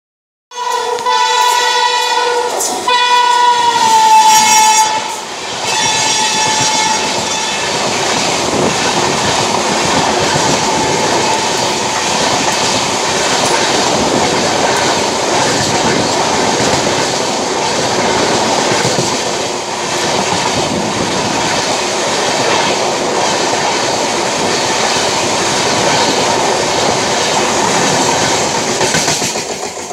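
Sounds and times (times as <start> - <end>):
locomotive horn blasts: 0.5 - 7.7
train coaches rumbling past: 0.5 - 29.9
train wheel clatter: 1.0 - 29.9.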